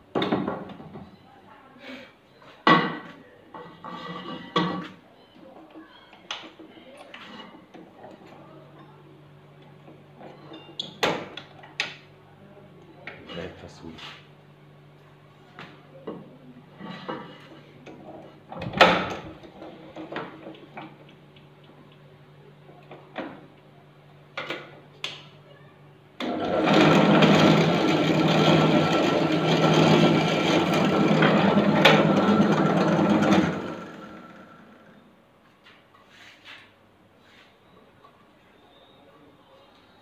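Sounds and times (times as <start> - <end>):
drill press motor humming: 26.2 - 35.0.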